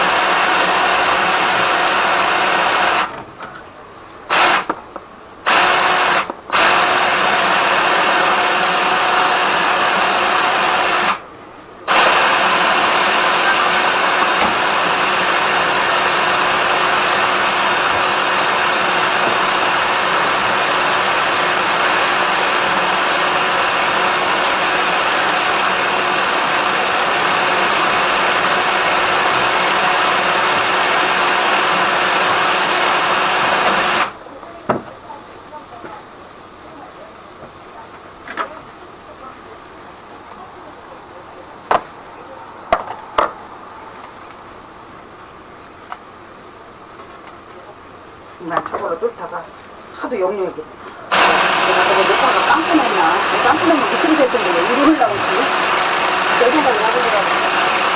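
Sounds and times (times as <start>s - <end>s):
drill motor whining: 0.0s - 3.2s, 4.3s - 4.8s, 5.4s - 11.2s, 11.9s - 34.2s, 51.1s - 57.9s.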